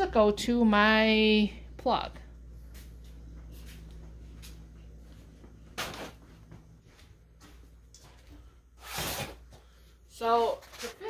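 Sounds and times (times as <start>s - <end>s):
low hum: 0.0s - 8.8s
footsteps on concrete: 2.6s - 8.5s.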